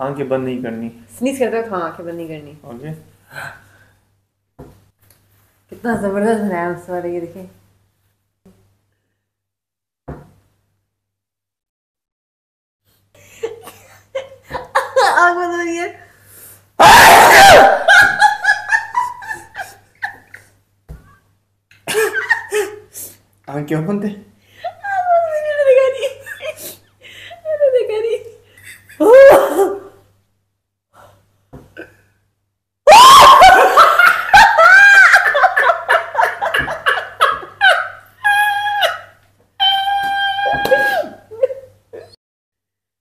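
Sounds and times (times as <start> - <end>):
giggling laughter: 17.8 - 20.6, 21.8 - 22.9, 33.5 - 39.1.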